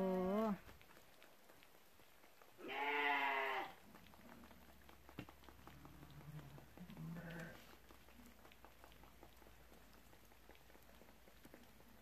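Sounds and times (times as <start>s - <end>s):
sheep bleating: 2.6s - 3.8s, 7.0s - 7.6s.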